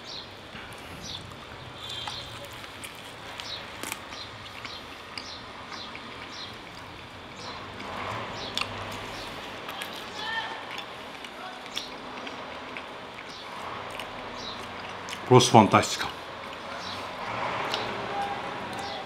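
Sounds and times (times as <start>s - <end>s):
man chewing: 0.4s - 15.3s, 16.0s - 19.0s
small bird chirping: 1.0s - 2.6s.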